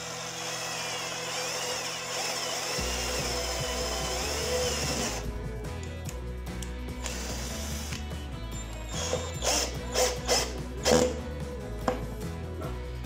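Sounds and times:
cordless drill boring wood: 0.0s - 5.3s, 7.0s - 11.2s
background music with a beat: 2.8s - 13.0s.

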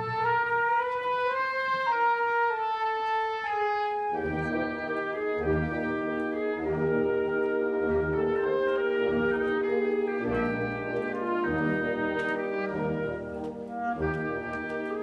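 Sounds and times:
wind band playing: 0.0s - 15.0s
held melodic line: 4.2s - 15.0s.

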